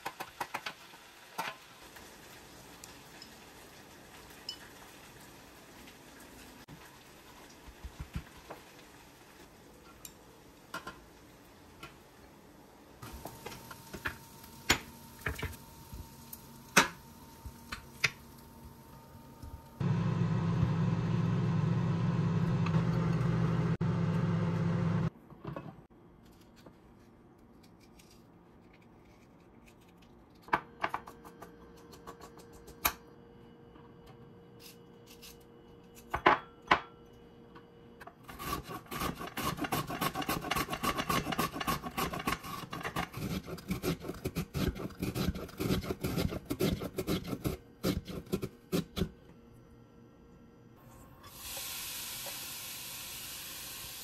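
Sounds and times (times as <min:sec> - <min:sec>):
loud mechanical hum: 0:18.7 - 0:25.1
carrots shredded on a grater: 0:38.3 - 0:49.0.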